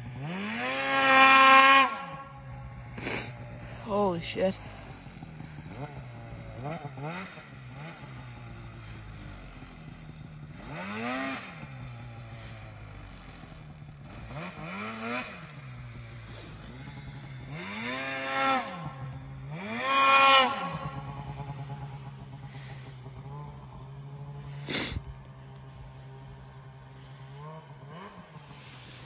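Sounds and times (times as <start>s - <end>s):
snowmobile engine revving: 0.0s - 29.0s.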